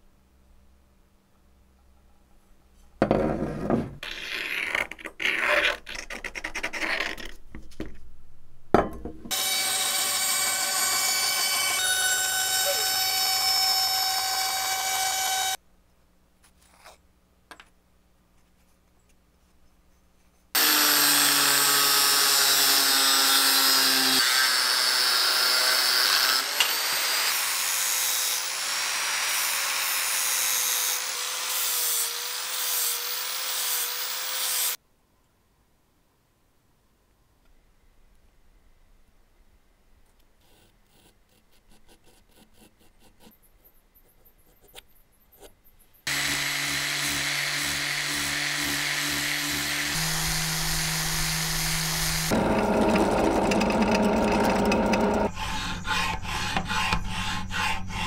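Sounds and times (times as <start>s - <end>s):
angle grinder cutting steel: 9.3s - 15.6s, 20.6s - 34.8s, 46.1s - 58.0s
power tool running: 9.3s - 15.6s, 20.6s - 34.8s, 46.1s - 57.2s
marker scratching on wood: 55.4s - 58.0s.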